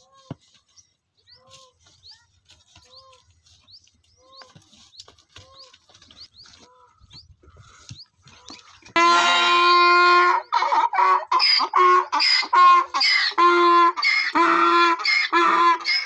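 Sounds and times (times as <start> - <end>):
donkey braying: 8.3 - 16.0.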